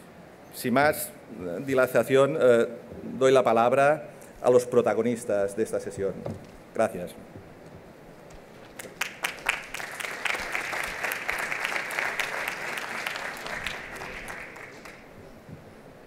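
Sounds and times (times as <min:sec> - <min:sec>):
audience applauding: 0:08.6 - 0:15.2.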